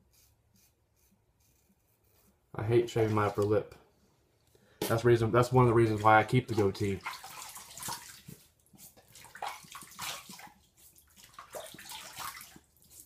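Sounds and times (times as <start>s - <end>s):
water splashing in a sink: 5.4s - 13.0s.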